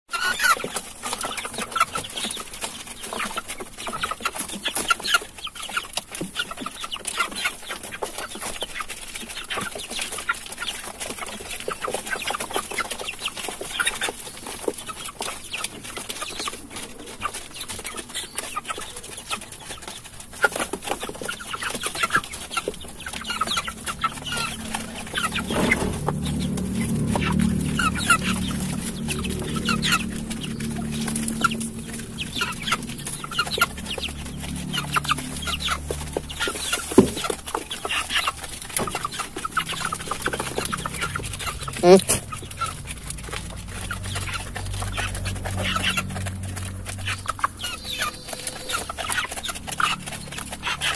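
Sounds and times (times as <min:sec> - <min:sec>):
chickens clucking: 0:00.1 - 0:50.9
low steady hum: 0:22.8 - 0:50.6.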